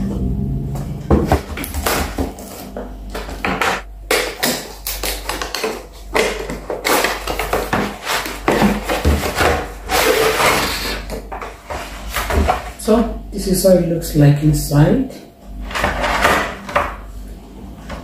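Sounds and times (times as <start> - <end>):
cardboard scraping and rubbing: 6.8 - 12.8.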